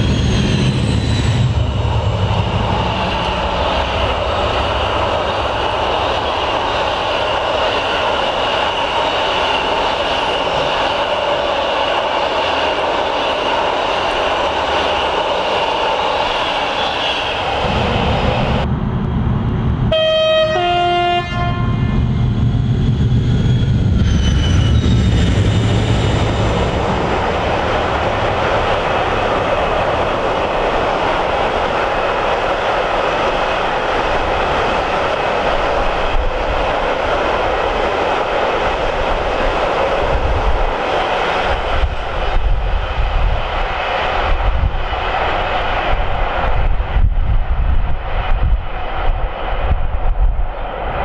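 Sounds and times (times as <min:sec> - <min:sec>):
high wheel squeal: 0:00.0 - 0:03.2, 0:22.2 - 0:26.7
diesel locomotive rumble: 0:00.0 - 0:51.0
wagons rumbling on rails: 0:00.0 - 0:51.0
two-tone train horn blast: 0:19.9 - 0:22.2.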